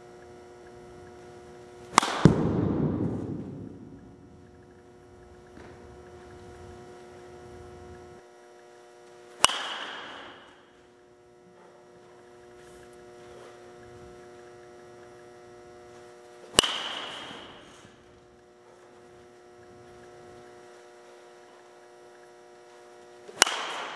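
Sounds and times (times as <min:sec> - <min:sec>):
steady electrical hum: 0:00.0 - 0:23.9
baseball bat hitting ball: 0:01.9 - 0:04.6, 0:09.4 - 0:10.7, 0:16.5 - 0:18.0, 0:23.3 - 0:23.9.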